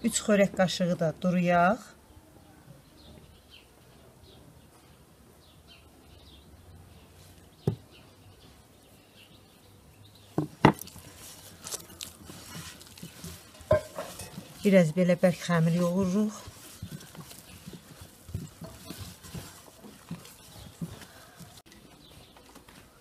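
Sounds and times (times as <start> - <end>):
dough rustling by hand: 10.4 - 23.0.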